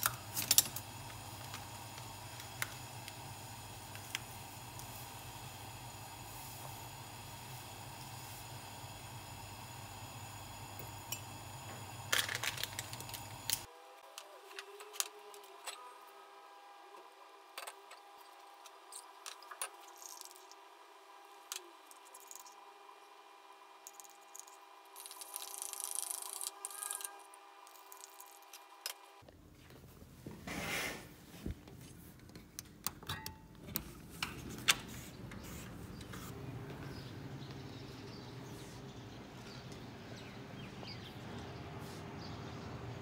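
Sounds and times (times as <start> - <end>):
gas burner low rumble: 0.0 - 13.7.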